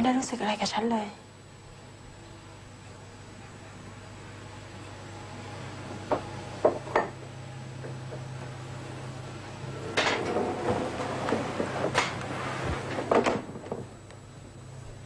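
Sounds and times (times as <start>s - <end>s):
steady low hum: 0.0s - 15.0s
scraping and rustling: 8.5s - 14.6s.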